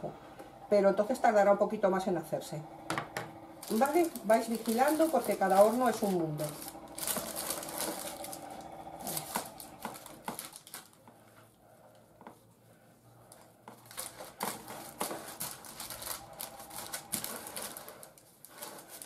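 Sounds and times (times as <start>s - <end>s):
spatula scraping cake batter: 11.1s - 16.2s.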